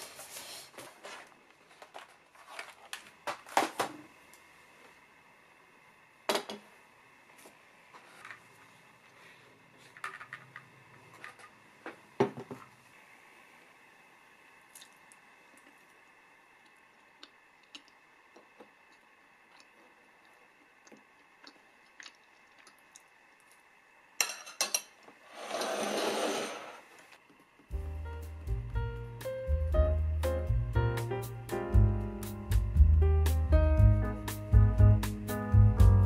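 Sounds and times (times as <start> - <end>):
fork scraping through cookie: 25.3 - 26.9.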